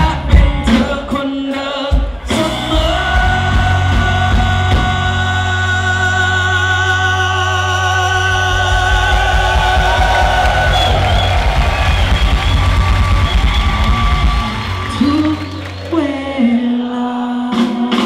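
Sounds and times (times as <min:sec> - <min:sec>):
live rock band: 0:00.0 - 0:18.0
man singing long note: 0:02.3 - 0:09.6.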